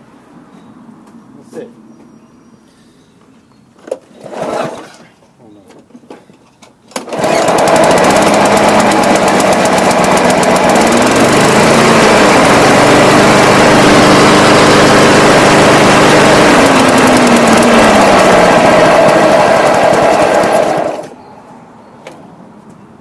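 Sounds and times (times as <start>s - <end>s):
lawn mower engine running: 6.9s - 21.2s.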